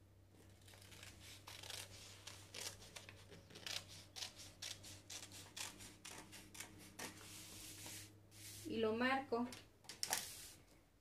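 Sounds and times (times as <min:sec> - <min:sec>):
scissors cutting paper: 0:00.5 - 0:07.5.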